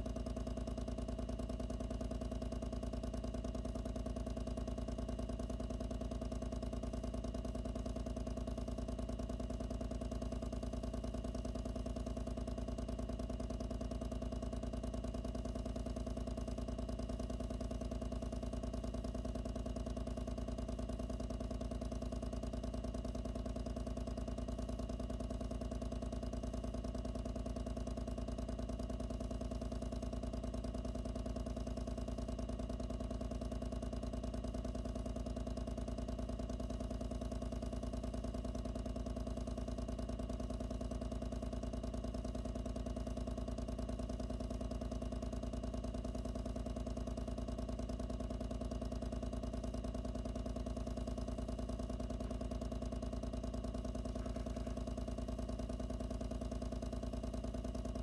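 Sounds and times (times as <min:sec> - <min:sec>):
pump humming: 0:53.8 - 0:55.8.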